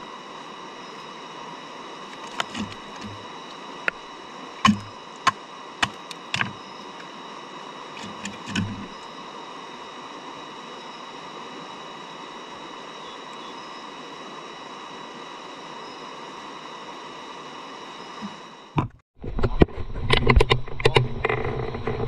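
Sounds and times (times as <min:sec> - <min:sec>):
steady hiss: 0:00.0 - 0:18.8
sharp clicks and knocks: 0:04.6 - 0:06.6, 0:08.0 - 0:09.0.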